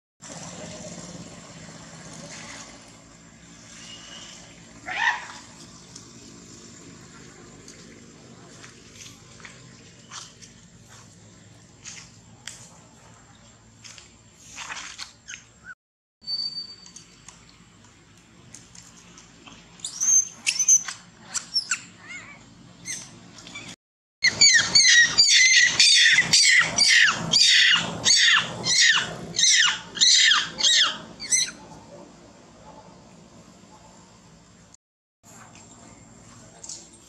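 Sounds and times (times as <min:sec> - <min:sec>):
monkey screaming: 0:04.8 - 0:05.6, 0:20.0 - 0:31.6.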